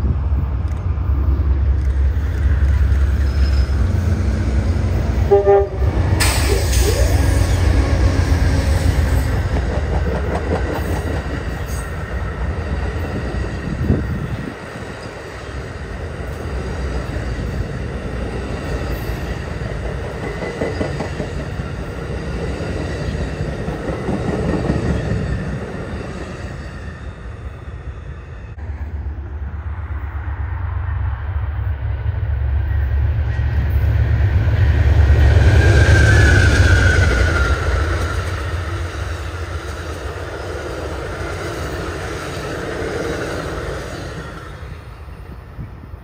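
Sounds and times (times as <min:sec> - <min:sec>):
diesel locomotive engine rumble: 0:00.0 - 0:46.0
train horn: 0:05.2 - 0:08.2
train wheels clicking over rail joints: 0:06.0 - 0:26.5.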